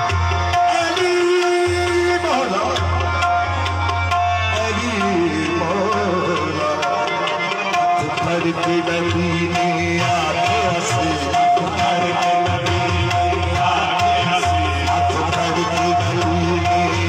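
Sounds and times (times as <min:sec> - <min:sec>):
harmonium notes: 0:00.0 - 0:17.0
tabla strokes: 0:00.0 - 0:17.0
person singing ornamented vocals: 0:04.5 - 0:17.0.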